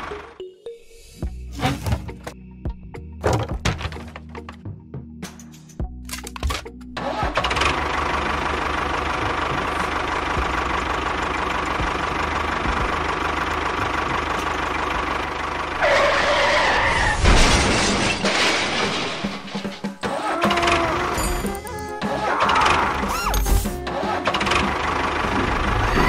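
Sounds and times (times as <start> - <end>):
tractor engine running: 0.0 - 0.4, 6.3 - 26.0.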